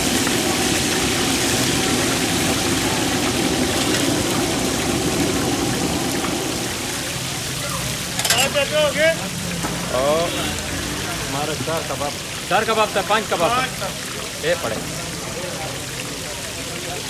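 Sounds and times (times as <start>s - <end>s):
oil sizzling in a pan: 0.0s - 13.6s.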